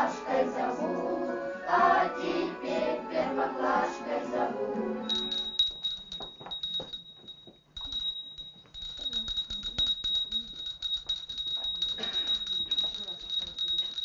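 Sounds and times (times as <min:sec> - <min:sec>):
brass handbell ringing: 0:05.1 - 0:14.0.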